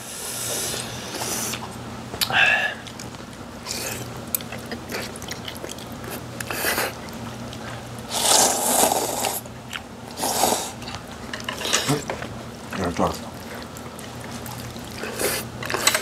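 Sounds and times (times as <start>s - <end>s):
low steady hum: 0.0s - 16.0s
mouth clicks and chewing: 2.2s - 10.2s
noodles slurped: 2.2s - 11.0s, 12.8s - 16.0s.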